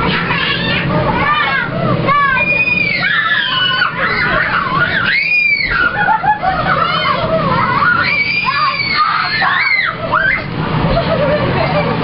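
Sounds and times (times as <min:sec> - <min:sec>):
children screaming and shouting: 0:00.0 - 0:11.3
high shrieks: 0:07.7 - 0:10.5.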